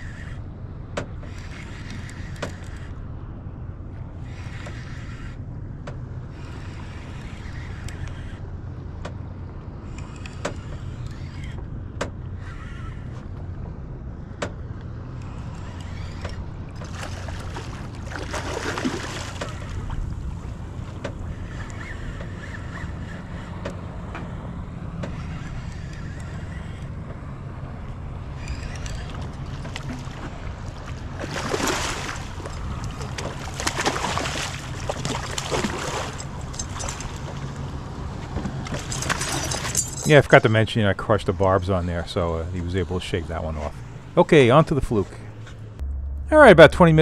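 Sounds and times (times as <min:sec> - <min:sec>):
fish splashing at water surface: 0:16.8 - 0:19.9, 0:29.6 - 0:37.3
steady low rumble: 0:39.8 - 0:47.0.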